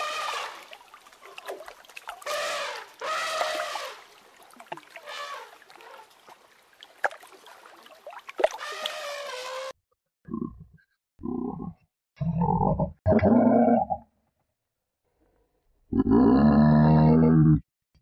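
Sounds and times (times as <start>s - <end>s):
water trickling and splashing: 0.0s - 9.8s
high-pitched animal calls: 2.3s - 4.0s, 8.6s - 9.7s.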